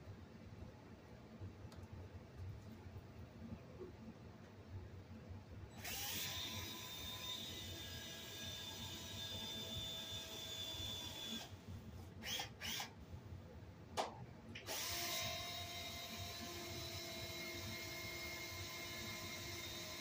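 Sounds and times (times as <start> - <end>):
power drill running: 5.8 - 11.6, 12.2 - 12.9, 14.6 - 20.0
sharp clicks and knocks: 14.0 - 14.7.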